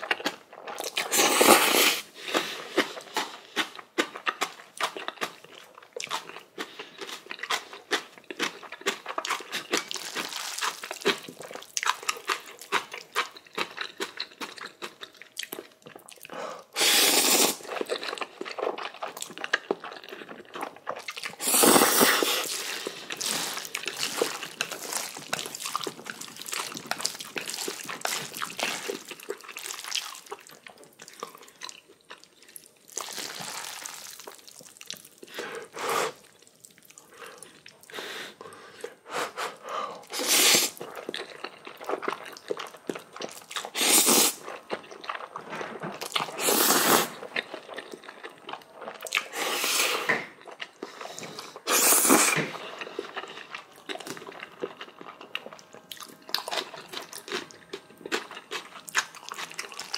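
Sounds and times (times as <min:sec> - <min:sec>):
wet chewing and crunching: 0:00.0 - 0:37.9, 0:40.0 - 0:59.9
person slurping noodles: 0:01.0 - 0:02.8, 0:16.7 - 0:17.7, 0:21.4 - 0:25.1, 0:35.3 - 0:36.3, 0:39.2 - 0:40.8, 0:43.7 - 0:44.4, 0:46.3 - 0:47.2, 0:49.2 - 0:50.3, 0:51.0 - 0:52.6.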